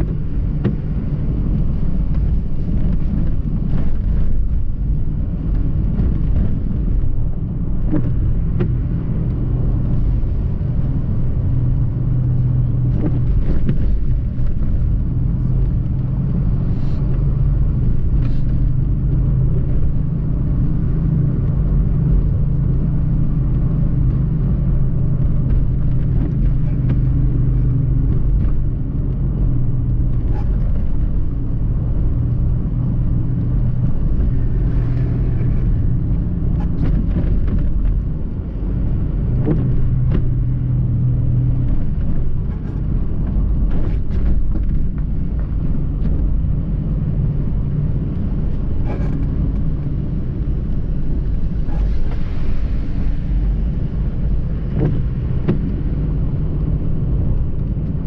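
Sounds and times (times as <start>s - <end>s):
car engine and tyre drone: 0.0s - 58.0s.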